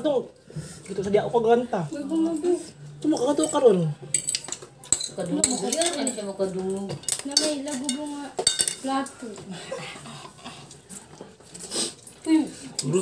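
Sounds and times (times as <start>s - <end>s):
cutlery clicking and scraping plates: 3.0s - 9.1s.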